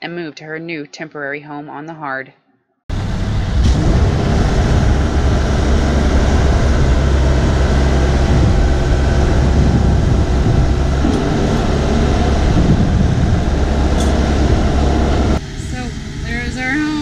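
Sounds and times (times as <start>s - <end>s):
engine droning: 2.9s - 17.0s.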